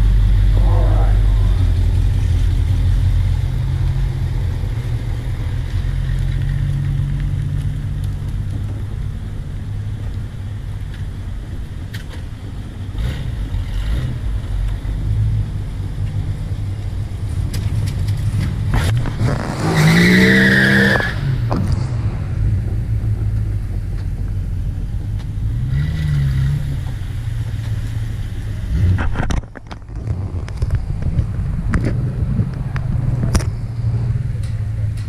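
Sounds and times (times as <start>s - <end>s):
engine revving with high squeal: 0.0s - 2.8s, 18.7s - 23.3s
car engines rumbling: 0.0s - 35.0s.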